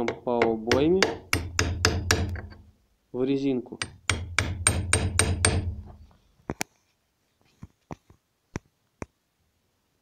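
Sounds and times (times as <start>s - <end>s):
hammer striking chisel on metal: 0.0s - 2.7s, 3.8s - 5.9s.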